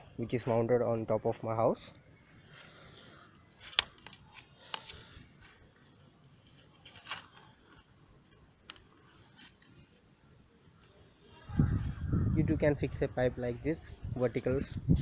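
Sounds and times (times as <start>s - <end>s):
hands handling plastic pipe: 3.5s - 10.2s.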